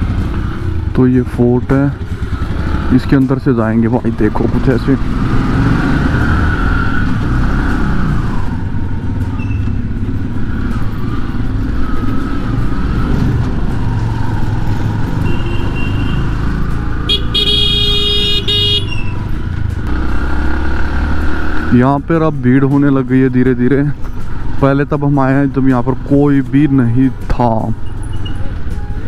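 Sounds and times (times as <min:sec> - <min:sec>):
motorcycle engine running: 0:00.0 - 0:21.9
vehicle horn: 0:15.2 - 0:16.4, 0:17.1 - 0:19.1.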